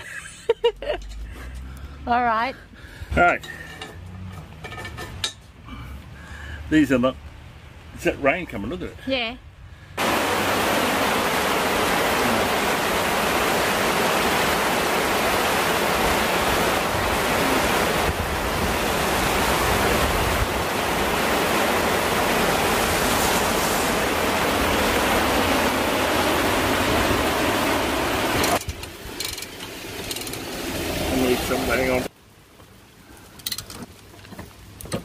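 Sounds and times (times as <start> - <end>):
heavy rain pouring: 9.9 - 35.0.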